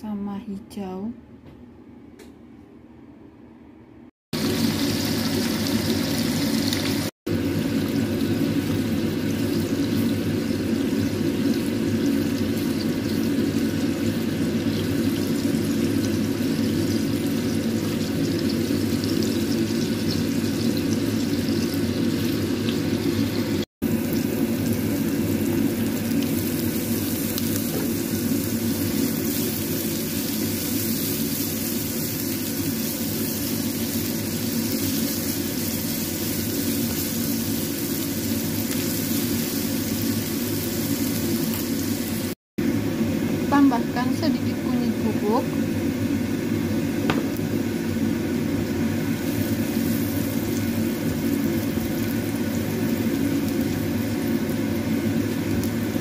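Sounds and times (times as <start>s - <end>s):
oil sizzling in a frying pan: 4.4s - 56.0s.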